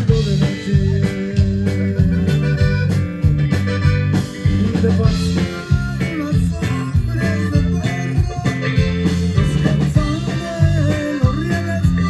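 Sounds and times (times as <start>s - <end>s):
drums: 0.0s - 12.0s
live band playing instrumental: 0.0s - 12.0s
rhythmic bass line: 0.0s - 12.0s.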